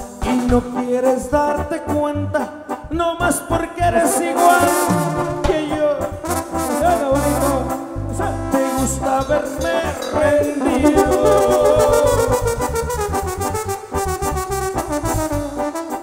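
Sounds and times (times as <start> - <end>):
live band playing amplified music: 7.7 - 12.5.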